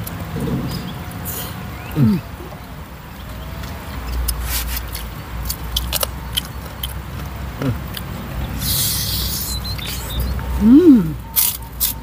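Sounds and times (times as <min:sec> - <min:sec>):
steady low rumble: 0:00.0 - 0:03.6
hissing rustle: 0:04.0 - 0:05.2, 0:08.0 - 0:10.4
fingers picking at food: 0:04.1 - 0:07.0.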